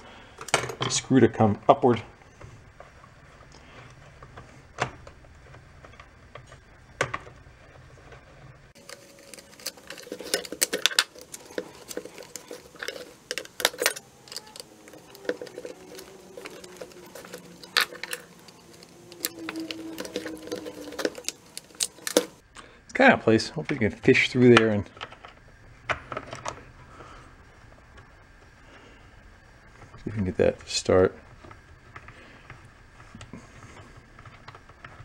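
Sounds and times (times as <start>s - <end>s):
metal tool clicking in plastic: 8.8s - 22.4s.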